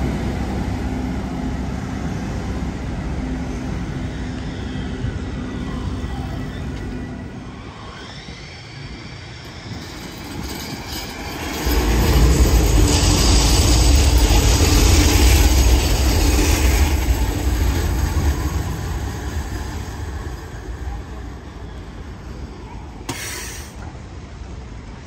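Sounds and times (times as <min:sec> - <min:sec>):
high hiss of passing tram: 0:00.0 - 0:25.0
tram wheels rumbling on rails: 0:00.0 - 0:25.0.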